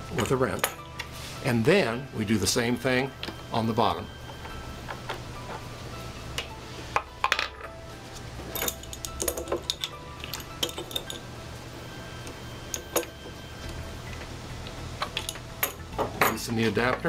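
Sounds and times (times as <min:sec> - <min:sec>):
metal tool clinking and tapping: 0:00.2 - 0:01.1, 0:08.5 - 0:11.2, 0:15.0 - 0:17.0.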